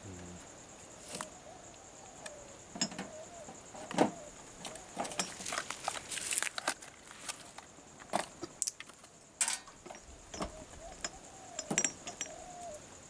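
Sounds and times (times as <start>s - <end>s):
high insect buzz: 0.0s - 13.0s
glass vials clinking and rattling: 9.4s - 12.5s.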